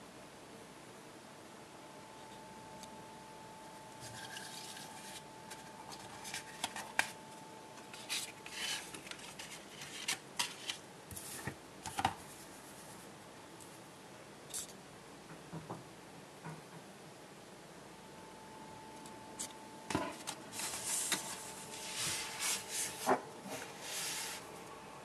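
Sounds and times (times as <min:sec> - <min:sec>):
cards scraping and tapping: 0:07.8 - 0:12.2.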